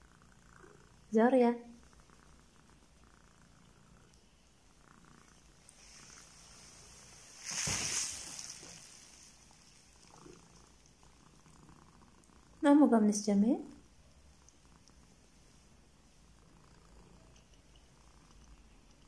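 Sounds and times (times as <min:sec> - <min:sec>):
cat purring: 0:00.0 - 0:19.0
rustle: 0:05.3 - 0:11.3.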